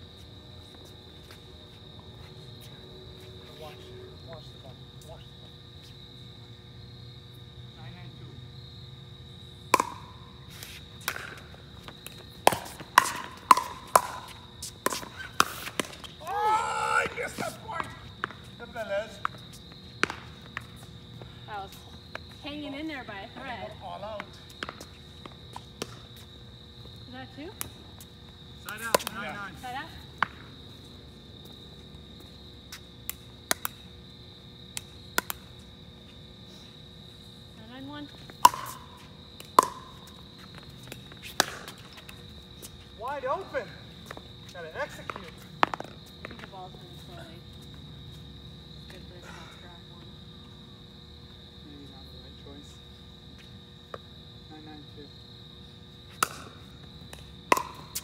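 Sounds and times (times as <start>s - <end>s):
insects droning: 0.0s - 58.0s
paddles hitting plastic ball: 9.7s - 10.1s, 12.0s - 16.4s, 38.4s - 38.8s, 39.4s - 40.0s, 40.8s - 42.2s, 56.2s - 58.0s
paddle hitting plastic ball: 38.4s - 38.8s, 57.5s - 58.0s.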